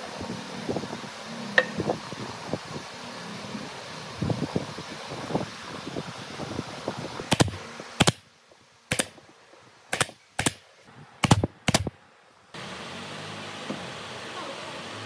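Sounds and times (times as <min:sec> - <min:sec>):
nail gun firing: 0:07.3 - 0:08.3, 0:08.9 - 0:09.2, 0:09.9 - 0:12.0.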